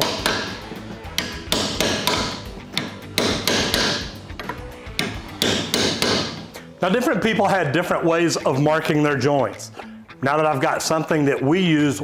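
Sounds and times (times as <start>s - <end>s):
hammer tapping metal: 0.0s - 6.5s.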